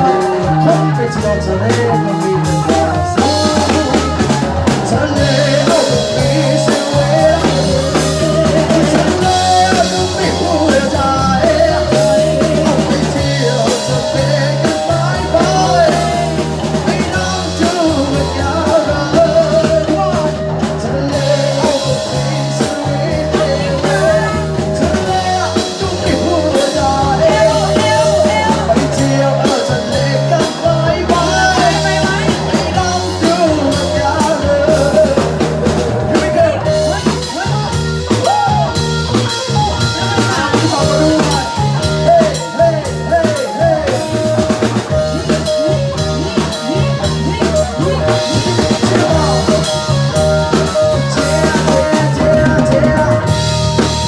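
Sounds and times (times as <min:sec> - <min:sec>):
drum kit: 0:00.0 - 0:54.0
electric guitar: 0:00.0 - 0:54.0
live rock band playing: 0:00.0 - 0:54.0
person singing: 0:00.0 - 0:54.0.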